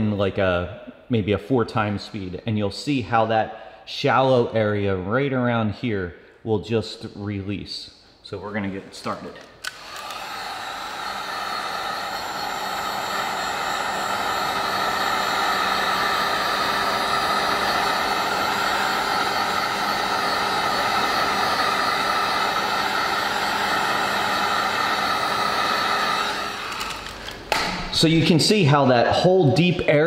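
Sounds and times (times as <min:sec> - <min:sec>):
heat gun fan whining: 0:09.6 - 0:28.2.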